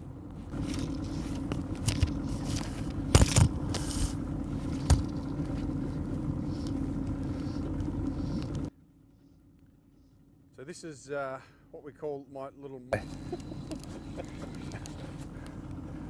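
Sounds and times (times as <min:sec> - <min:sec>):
boat motor running: 0:00.0 - 0:10.2, 0:13.0 - 0:16.0
sharp knocks and scrapes: 0:00.5 - 0:08.5.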